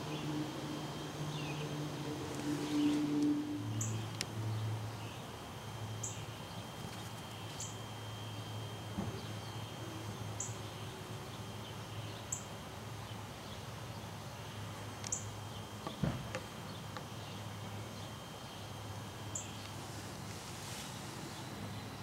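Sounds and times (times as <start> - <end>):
low hum: 0.0 - 13.1.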